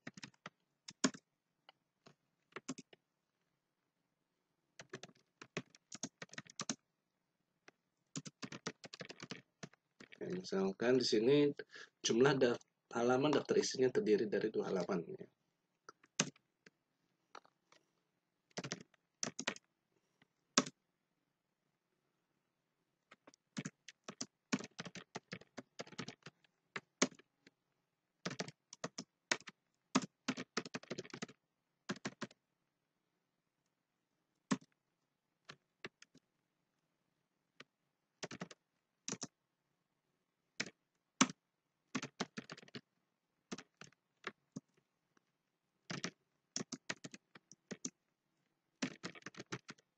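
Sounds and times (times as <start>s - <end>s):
typing on computer keyboard: 0.0s - 1.3s, 2.0s - 3.0s, 4.8s - 6.8s, 8.1s - 10.4s, 15.9s - 16.4s, 18.5s - 19.7s, 20.6s - 20.8s, 23.1s - 27.3s, 28.2s - 32.4s, 34.5s - 34.8s, 35.5s - 36.2s, 38.2s - 39.4s, 40.6s - 42.9s, 43.5s - 44.8s, 45.9s - 48.0s, 48.8s - 49.9s.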